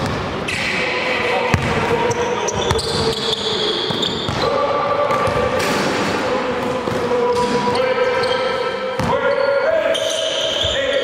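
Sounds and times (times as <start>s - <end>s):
sneaker squeaks: 1.5s - 4.6s, 7.2s - 11.0s.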